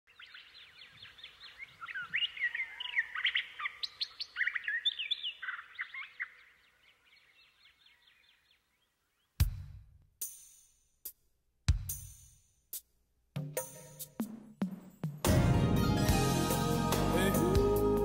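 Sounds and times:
small birds chirping: 0:00.1 - 0:09.4.

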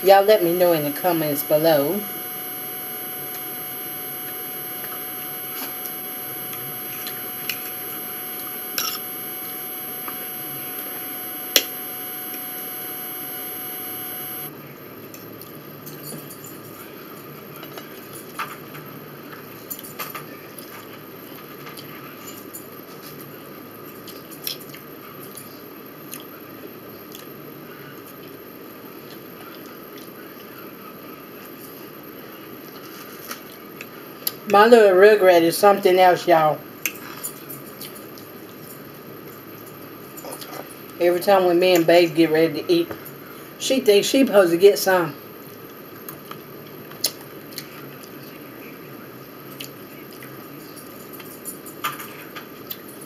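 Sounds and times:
electrical hum: 0:00.0 - 0:14.5.

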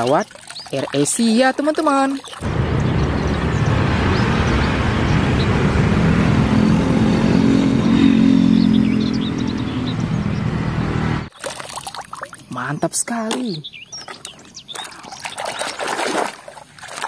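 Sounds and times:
deep engine hum: 0:02.4 - 0:11.3
jet engines roaring: 0:02.4 - 0:11.3.

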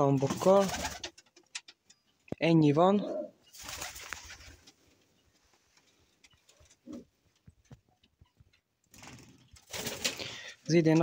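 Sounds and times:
pigeon cooing: 0:03.0 - 0:03.4, 0:06.8 - 0:07.1
soft rustle: 0:03.8 - 0:08.6.

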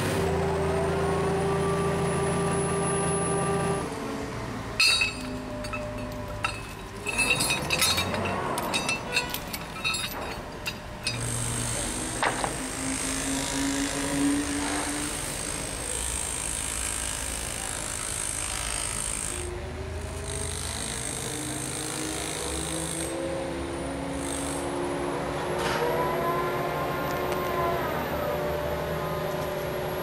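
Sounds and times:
crane engine running under load: 0:00.0 - 0:30.0
metallic clank: 0:04.8 - 0:11.4.

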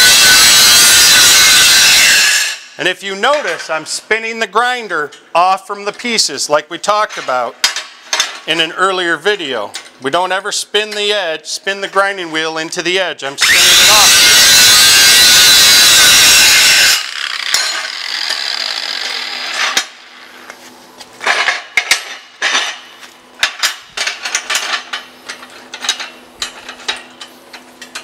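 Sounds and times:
angle grinder grinding steel: 0:00.0 - 0:02.8, 0:13.4 - 0:19.9.

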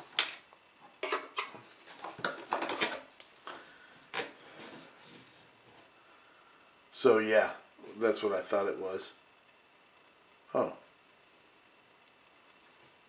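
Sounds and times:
cables rustling: 0:01.5 - 0:06.4, 0:10.9 - 0:13.0.

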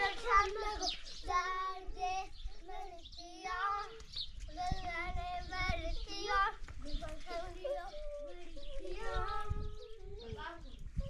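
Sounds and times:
children singing a chant: 0:00.0 - 0:11.0.

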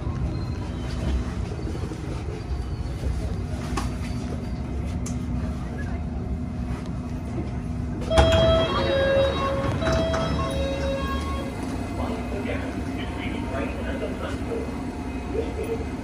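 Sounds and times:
train rumbling with hum: 0:00.0 - 0:16.0
short door beeps: 0:08.1 - 0:11.5.

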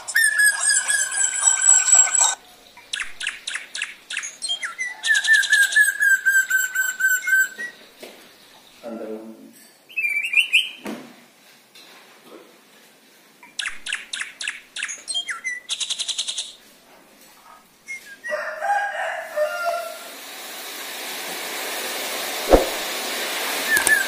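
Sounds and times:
hiss: 0:19.3 - 0:24.0.

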